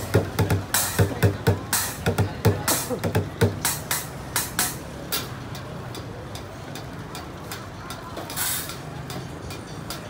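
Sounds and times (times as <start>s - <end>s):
drumming on pots and pans: 0.0s - 4.8s
traffic hum: 0.0s - 10.0s.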